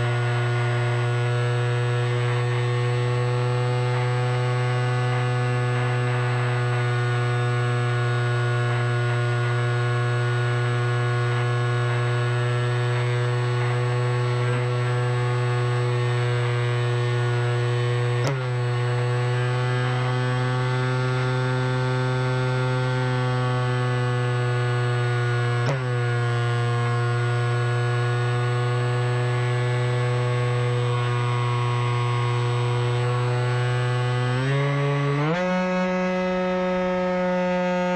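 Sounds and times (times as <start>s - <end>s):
electric motor and propeller hum: 10.6s - 37.9s.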